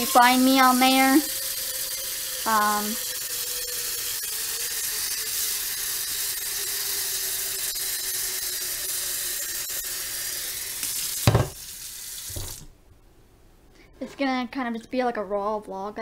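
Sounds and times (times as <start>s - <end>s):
faucet water filling metal pot: 0.0s - 12.6s
loud knock: 11.3s - 11.6s.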